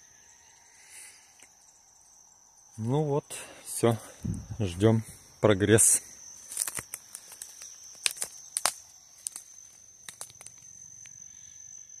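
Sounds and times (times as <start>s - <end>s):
high-pitched insect trill: 0.0s - 12.0s
sharp clicks and rustles: 6.5s - 10.7s.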